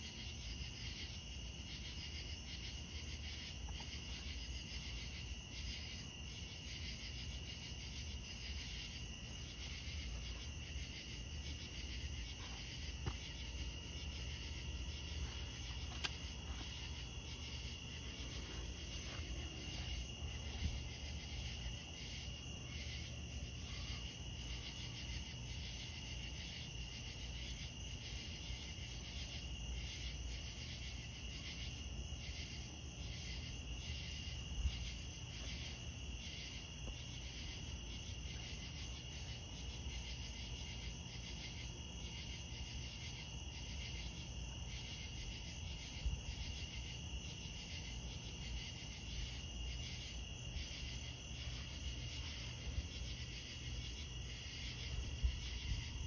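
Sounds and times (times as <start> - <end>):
insects trilling: 0.0 - 56.0
pulsing insect chirps: 1.7 - 23.1.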